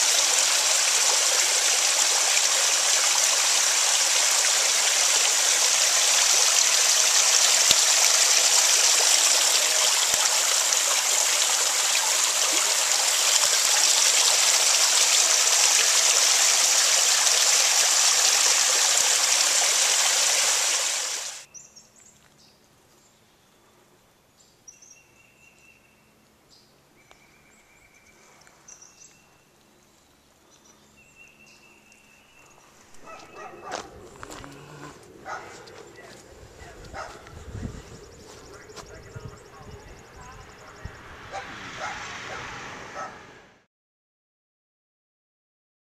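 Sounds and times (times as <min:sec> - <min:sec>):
waterfall splashing into pool: 0:00.0 - 0:21.5
whistled birdsong: 0:24.7 - 0:33.7.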